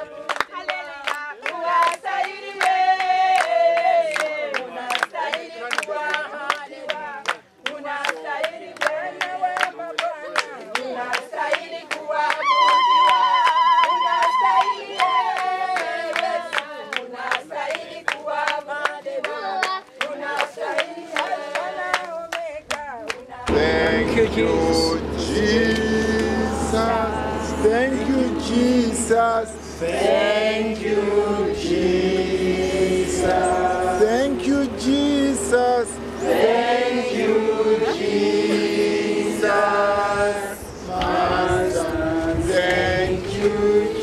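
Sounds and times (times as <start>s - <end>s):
group singing a worship song: 0.0s - 44.0s
hand clapping on a beat: 0.2s - 23.6s.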